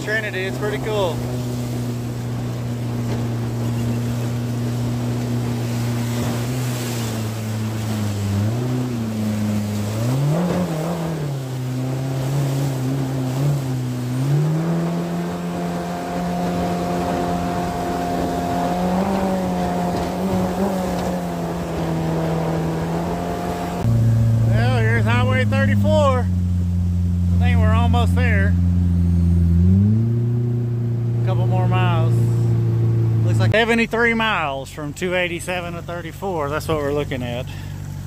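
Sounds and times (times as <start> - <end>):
outboard jet motor running: 0.0 - 38.0.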